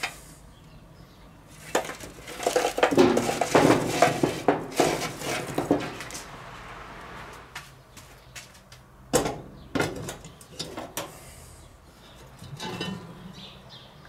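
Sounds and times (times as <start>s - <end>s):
charcoal clattering on steel: 1.6s - 6.2s, 12.3s - 13.2s.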